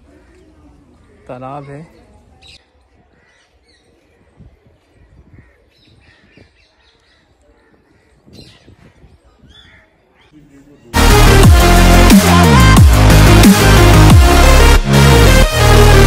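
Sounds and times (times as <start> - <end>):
birds calling faintly: 0.0 - 11.0.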